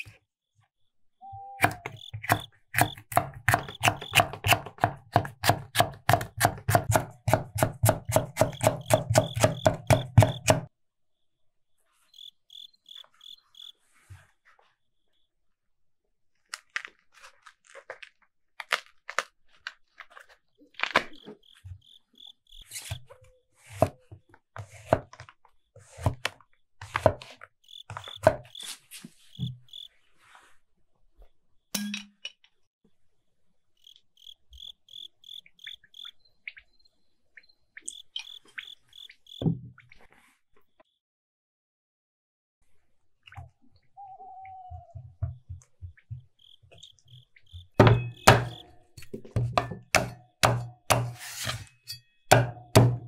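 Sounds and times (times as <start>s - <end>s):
cricket chirping: 1.2s - 4.3s, 12.1s - 13.8s, 21.1s - 22.6s, 27.6s - 28.6s, 29.3s - 29.9s, 33.8s - 36.3s, 37.9s - 39.4s, 46.3s - 48.7s
knife slicing on wooden board: 50.0s - 51.8s.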